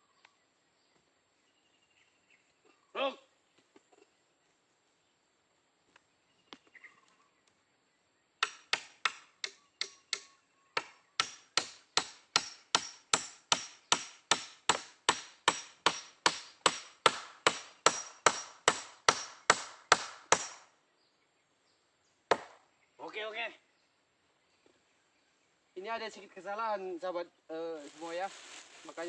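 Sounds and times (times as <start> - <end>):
hammer driving a nail into wood: 8.4 - 20.6, 22.3 - 22.6.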